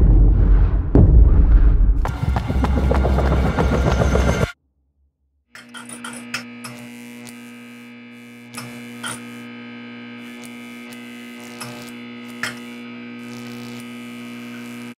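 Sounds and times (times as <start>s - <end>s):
neon sign electrical buzz: 5.6s - 15.0s.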